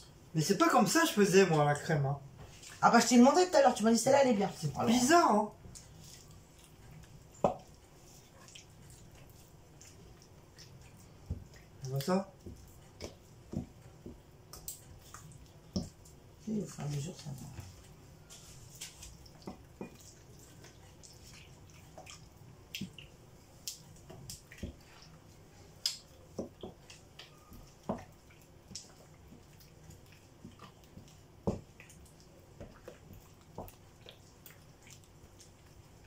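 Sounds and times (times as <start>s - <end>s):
wet squelches of batter: 0.0s - 36.0s.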